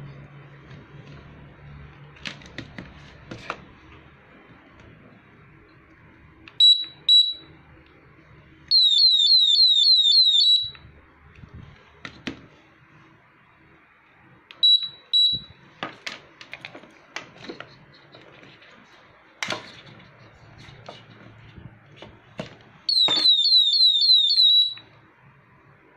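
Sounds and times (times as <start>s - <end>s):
alarm chirping: 6.6s - 7.5s, 8.7s - 10.8s, 14.6s - 15.6s, 22.9s - 24.9s.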